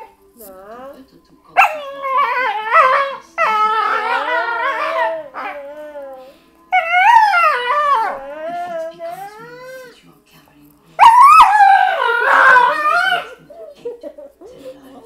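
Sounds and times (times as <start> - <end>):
dog whining and howling: 1.6 - 9.9, 11.0 - 13.4.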